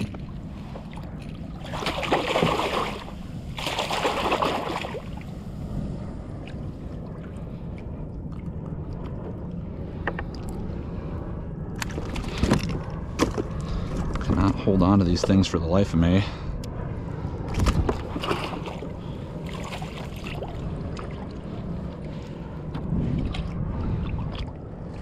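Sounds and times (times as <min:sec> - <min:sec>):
water movement: 0:00.0 - 0:15.6, 0:17.4 - 0:25.0
fish splashing in water: 0:01.6 - 0:05.2.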